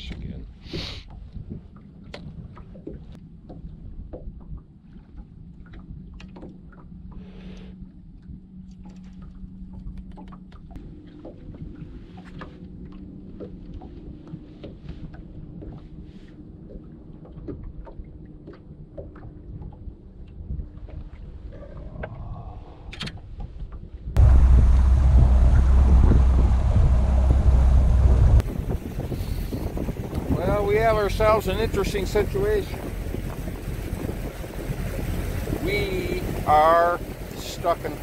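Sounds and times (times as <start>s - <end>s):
low rumble: 24.1s - 38.0s
outboard motor running: 24.2s - 38.0s.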